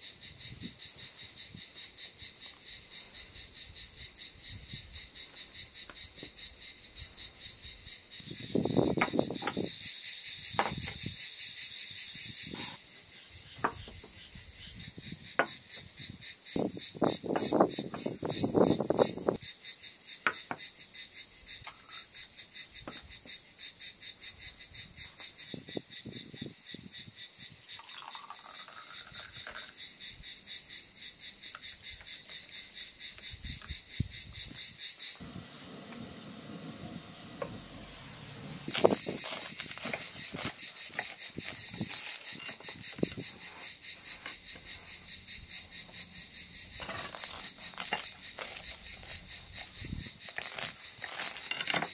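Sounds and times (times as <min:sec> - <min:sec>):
crickets chirping: 0:00.0 - 0:51.9
tea pouring into a glass: 0:27.8 - 0:29.7
tableware clinking: 0:50.5 - 0:51.9.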